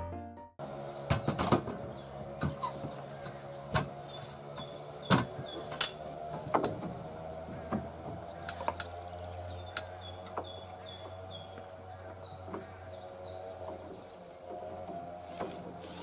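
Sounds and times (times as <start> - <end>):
small birds chirping: 0.6 - 6.3, 7.0 - 16.0
cordless drill into wood: 15.2 - 16.0.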